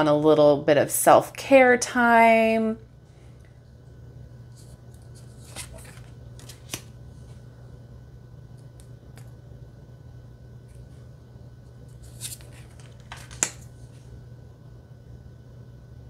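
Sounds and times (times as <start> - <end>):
faint low hum: 0.0 - 16.0
card swishing: 4.6 - 6.9.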